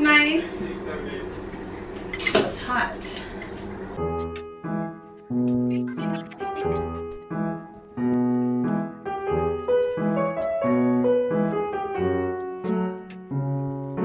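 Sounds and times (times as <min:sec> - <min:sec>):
piano music: 0:04.0 - 0:14.0.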